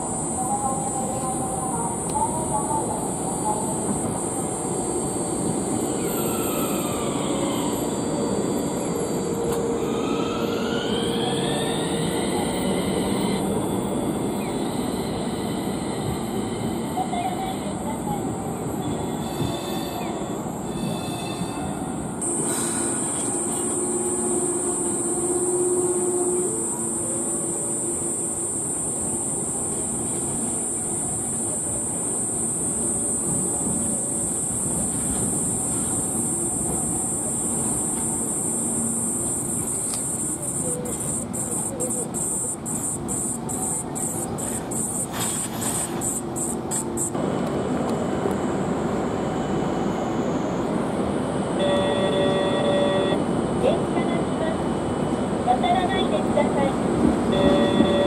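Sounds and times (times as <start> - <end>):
street noise: 0.0 - 58.0
tram wheels rumbling: 0.0 - 58.0
traffic noise: 21.6 - 58.0
tram horn: 22.2 - 31.4, 51.5 - 53.4, 56.9 - 58.0.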